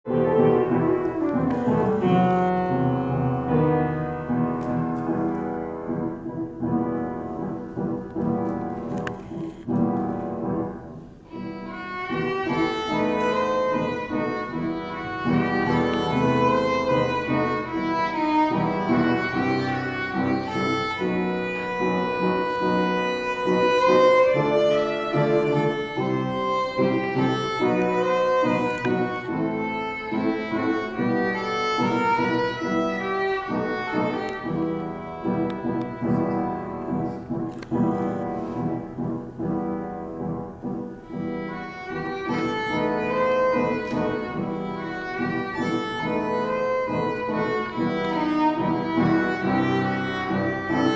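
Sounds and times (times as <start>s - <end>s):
violin melody: 0.0s - 50.9s.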